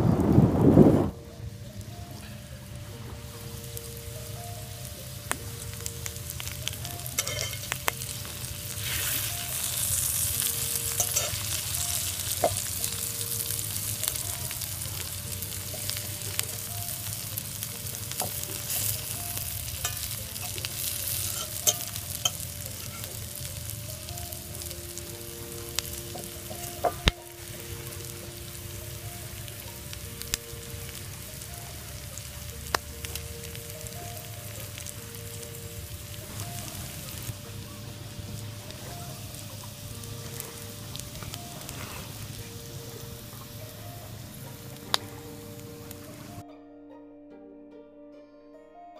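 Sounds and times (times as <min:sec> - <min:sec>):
mushrooms sizzling in oil: 0:00.0 - 0:46.4
fork scraping a pan: 0:07.2 - 0:07.8, 0:21.2 - 0:23.1.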